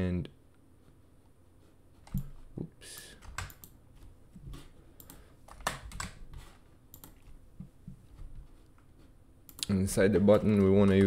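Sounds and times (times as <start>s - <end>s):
typing on computer keyboard: 3.2s - 3.7s, 5.0s - 6.2s.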